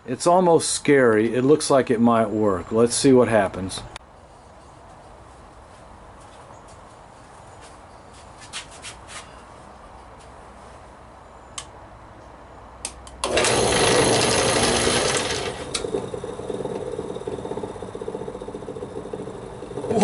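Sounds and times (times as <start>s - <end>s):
electric saw motor spinning up: 13.2s - 20.0s.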